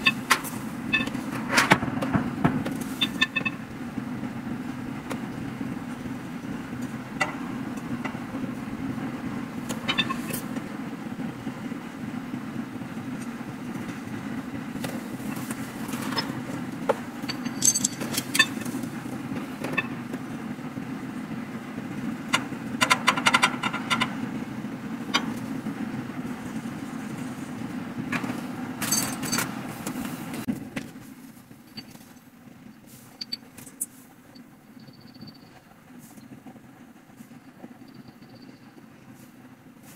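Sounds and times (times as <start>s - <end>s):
steady low hum: 0.0s - 39.9s
metal parts clicking and clinking: 17.2s - 18.7s, 28.8s - 29.5s.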